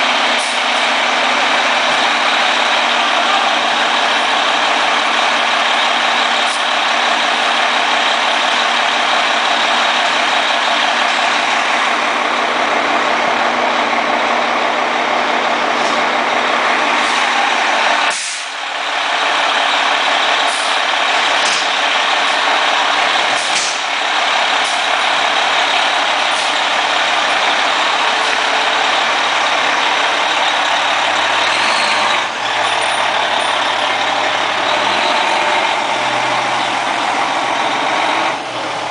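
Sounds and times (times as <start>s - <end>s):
diesel engine running: 0.0s - 38.9s
air-brake hisses: 18.1s - 18.6s.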